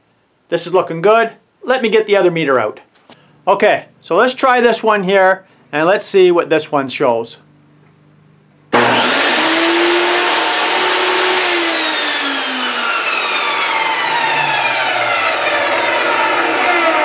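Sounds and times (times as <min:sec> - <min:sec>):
table saw whining and spinning down: 0:08.7 - 0:17.0.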